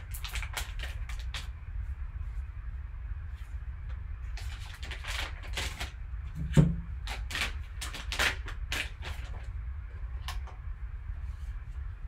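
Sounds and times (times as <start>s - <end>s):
foil wrapper crinkling and tearing: 0.0s - 1.6s, 4.3s - 6.1s, 6.9s - 9.5s.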